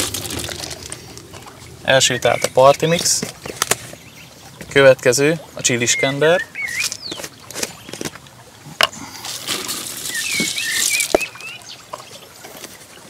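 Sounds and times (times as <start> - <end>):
seeds pouring into bucket: 0.0 - 1.0, 9.5 - 11.2
bird chirping: 1.9 - 4.5, 5.6 - 8.0, 10.0 - 12.2.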